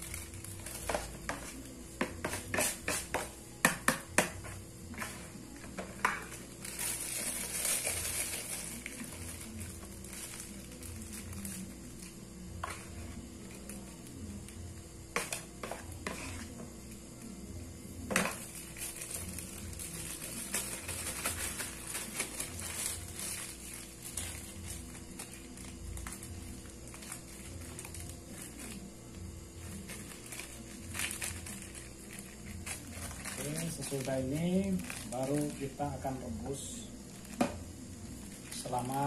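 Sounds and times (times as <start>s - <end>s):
plastic bag crinkling: 6.2s - 12.1s, 18.4s - 28.9s, 29.6s - 37.4s, 38.2s - 39.0s.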